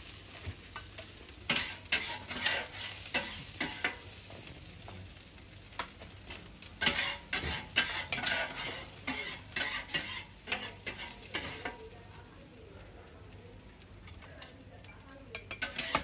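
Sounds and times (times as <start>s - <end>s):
steady sizzle: 0.0s - 16.0s
metal spatulas scraping a griddle: 1.5s - 4.1s, 6.8s - 11.8s, 15.4s - 16.0s.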